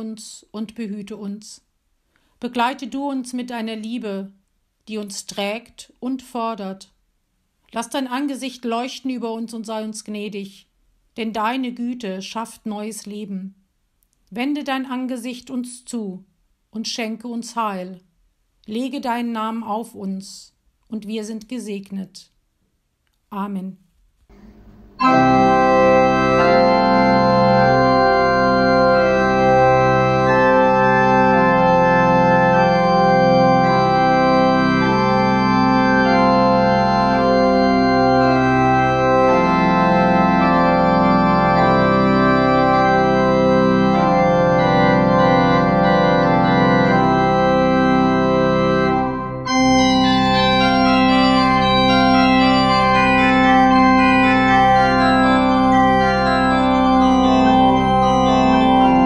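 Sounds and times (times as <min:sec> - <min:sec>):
organ playing sustained chords: 0:24.3 - 0:59.0.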